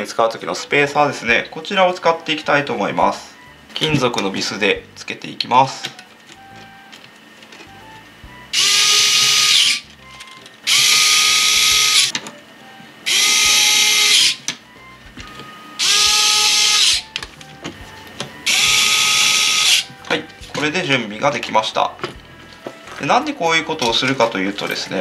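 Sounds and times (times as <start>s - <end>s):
electric screwdriver whining: 8.5s - 12.1s, 13.0s - 14.6s, 15.2s - 20.6s.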